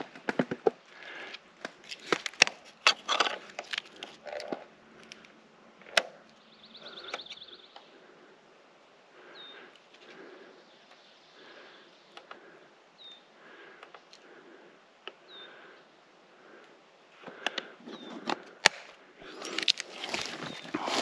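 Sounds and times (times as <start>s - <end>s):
twigs snapping: 0.3s - 6.4s, 18.3s - 21.0s
footsteps crunching through leaves: 19.3s - 21.0s.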